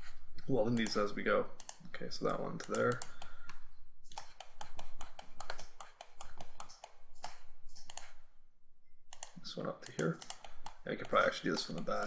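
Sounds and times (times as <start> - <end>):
computer keyboard and mouse clicking: 0.7 - 8.2, 9.1 - 12.0.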